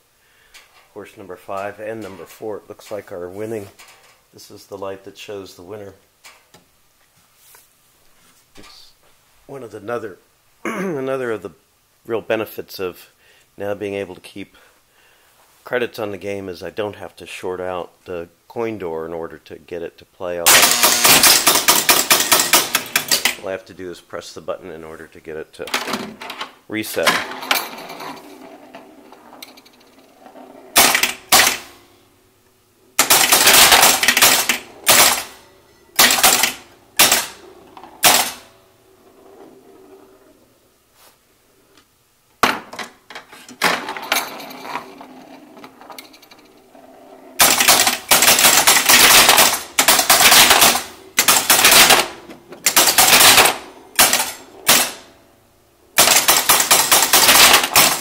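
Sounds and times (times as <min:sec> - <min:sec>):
pinball relays clattering and clicking: 0:20.5 - 0:23.4, 0:25.7 - 0:30.0, 0:30.7 - 0:31.8, 0:33.0 - 0:37.4, 0:38.0 - 0:38.5, 0:43.4 - 0:46.5, 0:47.4 - 0:55.1, 0:56.0 - 0:58.0.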